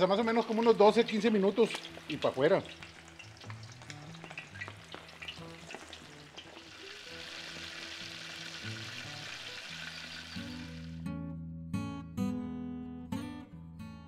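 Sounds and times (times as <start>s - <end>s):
chicken wings sizzling in oil: 0.0s - 11.0s
faint music: 0.0s - 11.1s.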